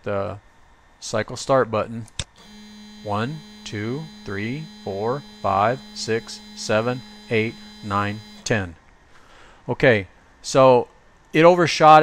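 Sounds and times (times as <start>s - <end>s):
stepper motor humming: 2.4s - 8.6s.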